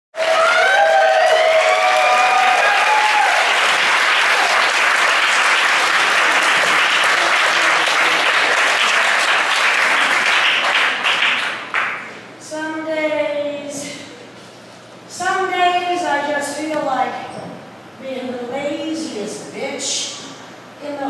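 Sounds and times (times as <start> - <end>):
people whooping: 0.2 - 5.0
audience applauding: 0.2 - 12.1.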